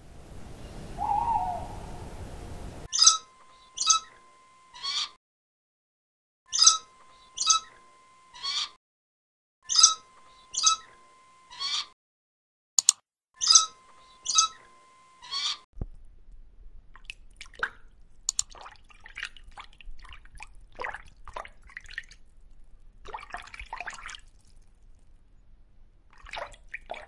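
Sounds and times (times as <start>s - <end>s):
hissy background: 0.0s - 2.9s
songbird chirping: 0.0s - 4.1s
owl hoot: 0.8s - 3.1s, 4.8s - 5.1s, 8.4s - 8.7s, 11.5s - 11.9s, 15.2s - 15.6s.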